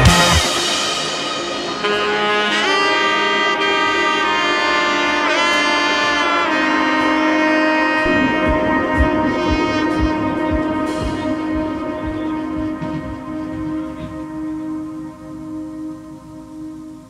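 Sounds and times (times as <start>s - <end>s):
steady bass drum beat: 0.0s - 0.8s, 8.0s - 14.7s
melody of long held notes: 0.0s - 17.0s.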